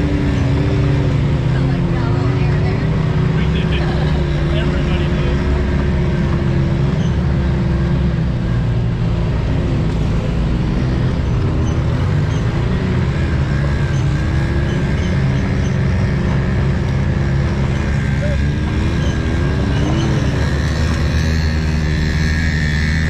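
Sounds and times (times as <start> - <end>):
off-road vehicle engine running: 0.0 - 23.0.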